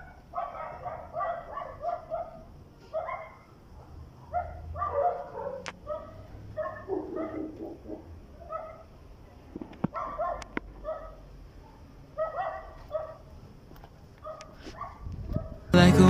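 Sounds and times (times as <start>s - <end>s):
dog barking: 0.0s - 8.9s, 9.9s - 13.3s, 14.2s - 15.7s.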